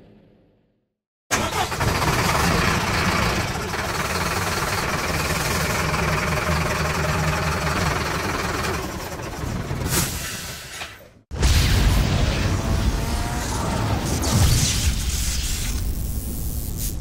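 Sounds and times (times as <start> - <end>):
diesel truck engine rumbling: 1.3 - 11.1
race track sound: 11.6 - 14.6.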